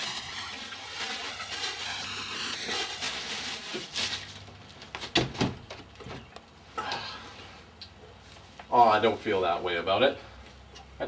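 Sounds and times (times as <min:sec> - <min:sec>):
water splashing in a tub: 0:00.0 - 0:03.9.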